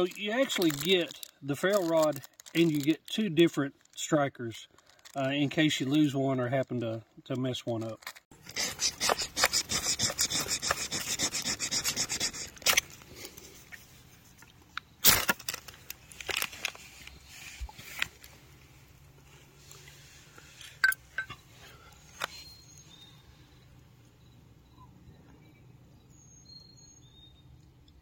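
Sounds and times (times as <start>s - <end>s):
faint clicks and crackles: 0.0s - 6.1s
striker scraping ferro rod: 8.4s - 12.9s.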